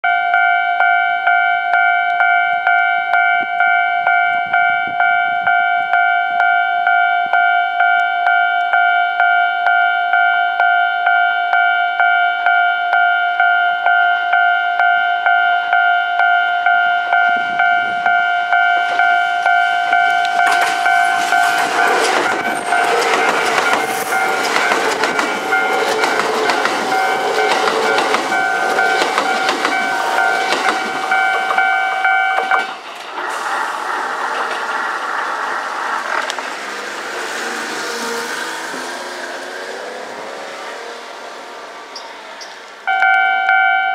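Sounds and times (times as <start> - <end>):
level crossing warning bell: 0.0 - 33.5, 41.7 - 43.9
train wheel clatter: 17.4 - 40.8.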